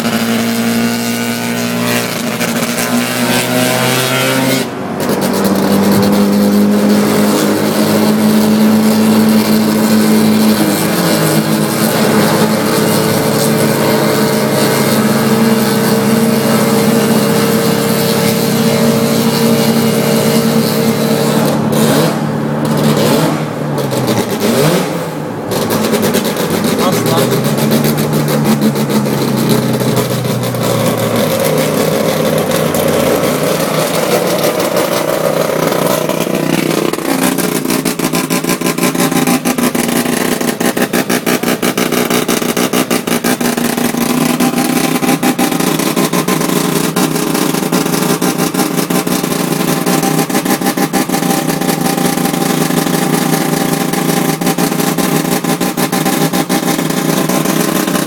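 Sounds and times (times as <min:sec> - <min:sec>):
rotary engine running loud: 0:00.0 - 0:58.0.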